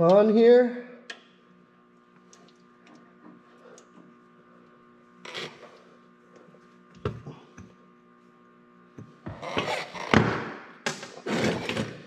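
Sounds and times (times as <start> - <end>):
steady electrical hum: 0.0 - 12.0
metal scrape: 11.2 - 12.0.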